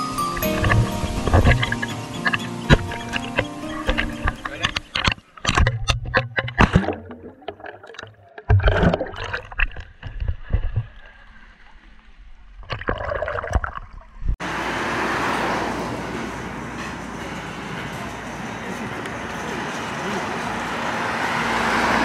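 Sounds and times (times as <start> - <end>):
traffic: 0.0 - 6.2, 14.3 - 22.0
water splashing: 0.3 - 14.4.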